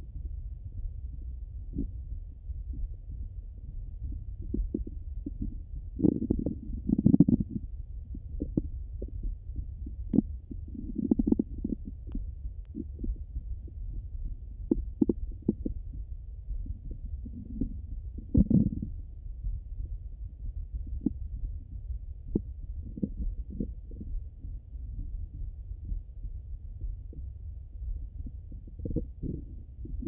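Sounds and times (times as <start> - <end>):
low muffled rumble: 0.0 - 30.0
stomach gurgling: 1.7 - 1.9, 3.6 - 16.0, 16.6 - 19.0, 20.7 - 26.0, 28.0 - 30.0.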